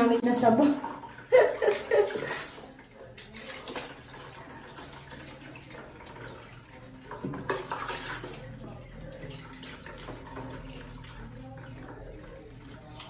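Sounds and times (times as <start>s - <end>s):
water sloshing in a bathtub: 0.0s - 13.0s.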